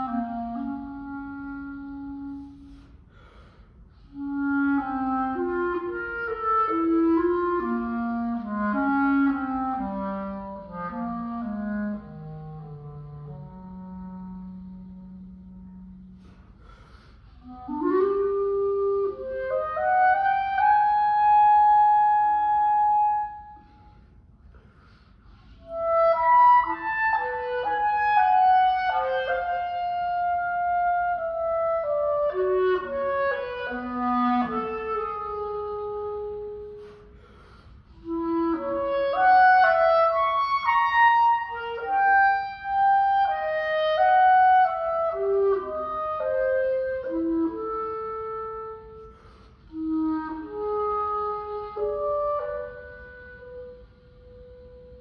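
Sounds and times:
solo clarinet melody: 0.0s - 24.1s, 24.8s - 55.0s
player breathing: 2.3s - 4.2s, 16.1s - 17.5s, 36.6s - 38.1s, 49.0s - 49.8s.

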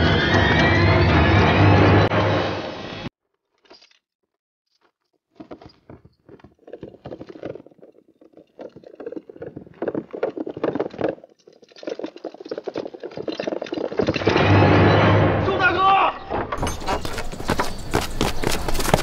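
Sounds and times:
horse hoofbeats galloping on dirt: 4.8s - 14.3s, 16.6s - 19.0s.

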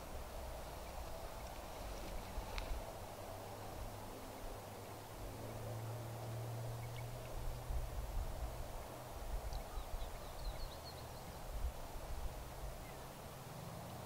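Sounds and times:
faint bird chirps: 9.5s - 11.5s.

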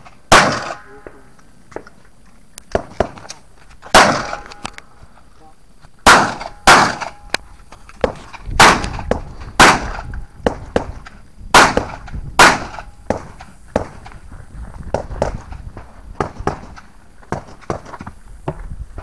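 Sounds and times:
pistol shots with echo: 0.3s - 1.1s, 3.9s - 4.4s, 6.0s - 7.3s, 8.6s - 10.1s, 11.5s - 13.2s.

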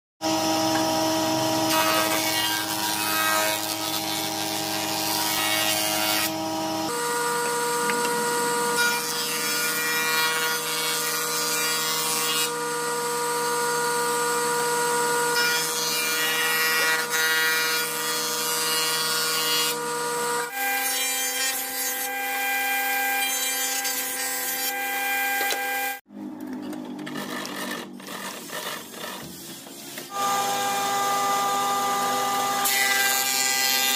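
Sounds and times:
planing machine whine: 0.2s - 10.7s, 11.9s - 17.8s, 30.0s - 33.9s
planer with feed rollers: 0.2s - 20.8s, 26.6s - 33.9s.

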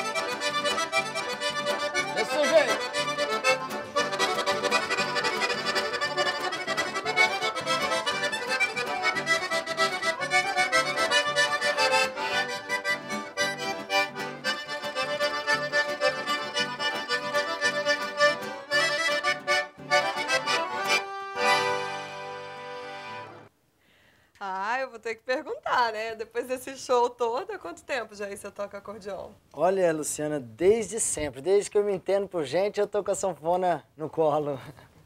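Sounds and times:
button accordion fast run: 0.0s - 23.5s
piano accordion backing: 0.0s - 23.5s.

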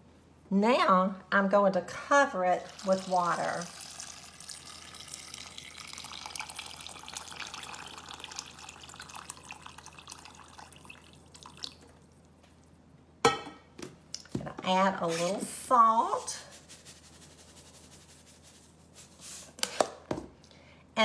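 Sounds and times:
water pouring into a saucepan: 2.5s - 12.3s.

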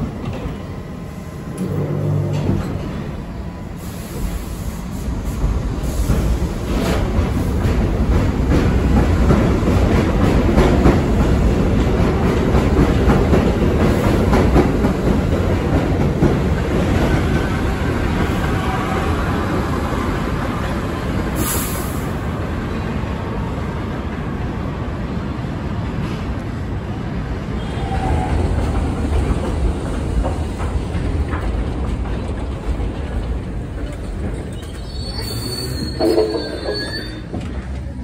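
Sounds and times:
heavy train rumble: 0.0s - 38.0s
train wheels clacking over rail joints: 5.8s - 18.7s, 27.8s - 34.9s
faint wheel squeal: 34.5s - 37.6s.

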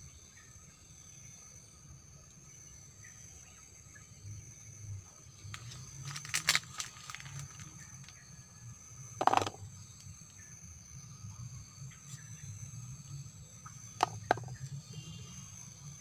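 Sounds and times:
rustling leaves: 5.4s - 8.2s
chilies dropping into plastic bowl: 9.2s - 9.6s.

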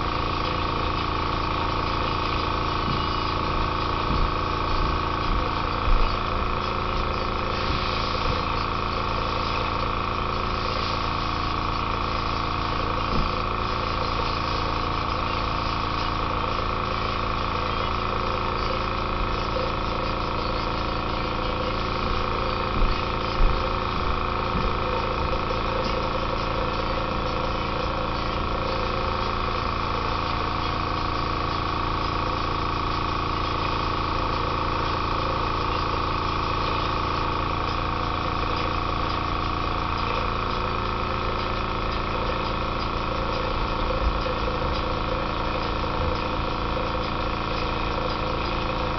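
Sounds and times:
airbrush hissing: 0.0s - 17.6s
air compressor humming: 0.0s - 48.9s.

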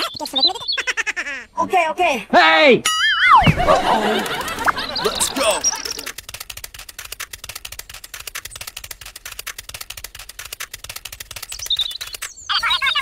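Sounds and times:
cartoon scurrying footsteps: 3.4s - 12.4s.

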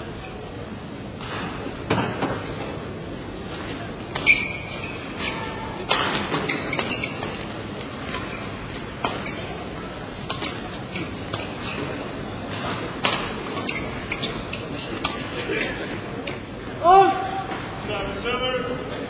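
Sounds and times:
hall background noise: 0.0s - 19.0s
shoe squeak on court: 4.2s - 5.6s, 6.3s - 7.4s, 8.0s - 9.6s, 10.4s - 12.1s, 13.5s - 14.8s.

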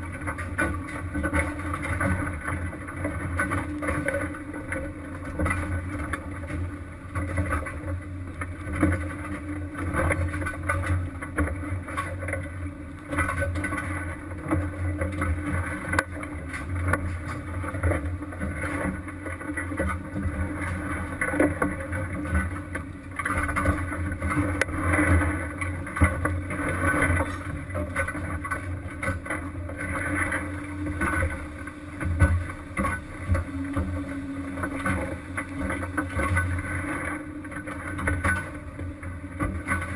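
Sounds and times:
boat engine humming: 0.0s - 39.9s
sea noise: 0.0s - 39.9s
wind: 0.0s - 39.9s.

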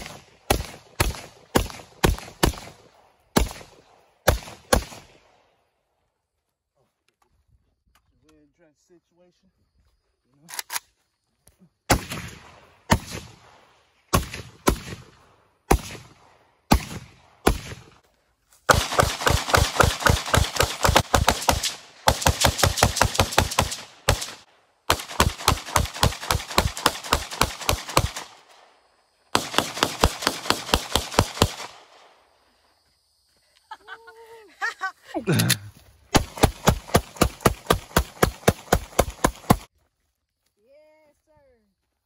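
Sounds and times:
rapid gunfire: 0.0s - 2.8s, 3.4s - 5.1s, 18.7s - 28.5s, 29.3s - 32.0s, 36.1s - 39.7s
single gunshots with echo: 11.9s - 17.9s.

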